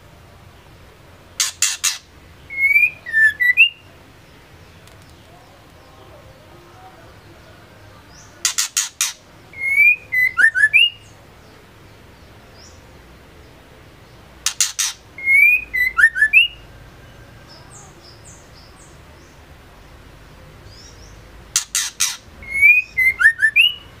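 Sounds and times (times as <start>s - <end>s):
bird calling with clicks and whistles: 1.4s - 3.8s, 8.4s - 11.0s, 14.4s - 16.6s, 21.6s - 23.9s.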